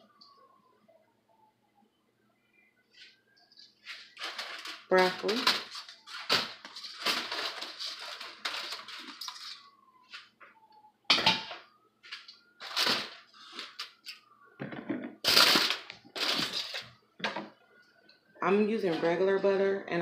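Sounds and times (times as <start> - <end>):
foil crinkling: 3.8 - 10.3, 12.0 - 14.2, 15.2 - 16.9.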